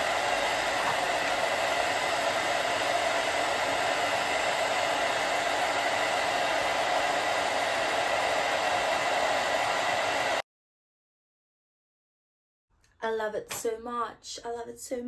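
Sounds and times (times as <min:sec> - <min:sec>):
hair dryer running: 0:00.0 - 0:10.4.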